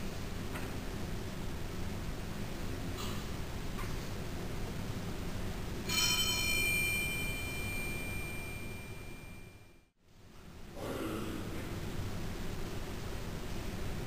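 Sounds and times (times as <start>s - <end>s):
small altar bell ringing: 5.9s - 9.9s.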